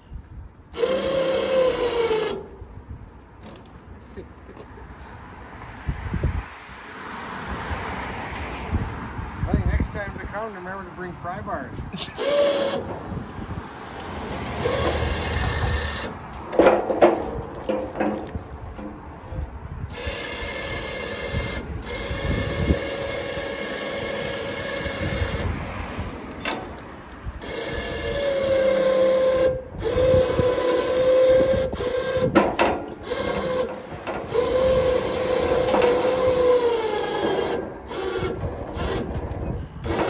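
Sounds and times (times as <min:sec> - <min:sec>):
winch motor whirring: 0:00.7 - 0:02.6, 0:12.2 - 0:13.0, 0:14.5 - 0:25.6, 0:26.3 - 0:40.0
metal knocks from carts: 0:16.4 - 0:19.3, 0:32.3 - 0:36.3.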